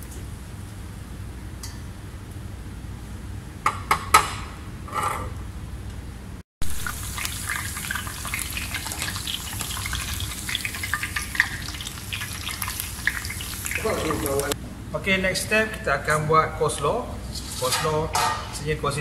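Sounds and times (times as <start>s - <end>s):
hot oil frying: 6.6s - 14.6s
kitchenware knocks and clinks: 17.7s - 18.6s.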